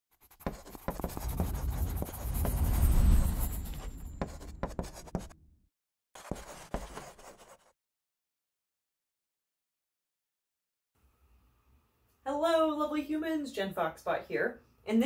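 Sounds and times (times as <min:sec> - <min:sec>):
chalk scratching on blackboard: 0:00.1 - 0:05.4, 0:06.2 - 0:07.8
low rumble: 0:01.1 - 0:05.1.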